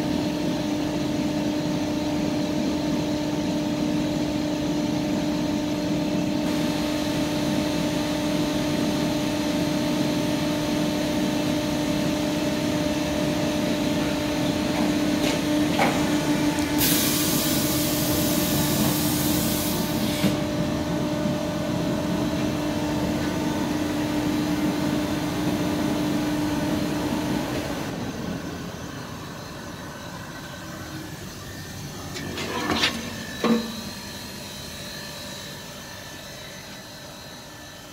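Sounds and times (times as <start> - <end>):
machine hum: 20.4 - 37.9.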